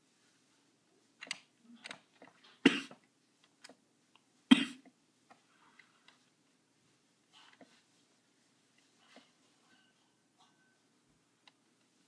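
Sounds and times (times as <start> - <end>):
person coughing: 2.6 - 3.0, 4.5 - 4.9.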